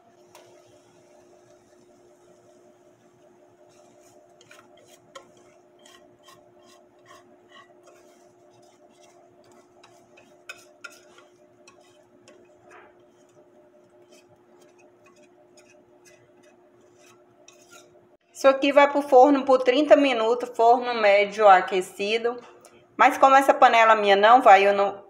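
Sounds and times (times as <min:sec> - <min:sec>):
batter scraped from bowl: 0:00.3 - 0:18.0.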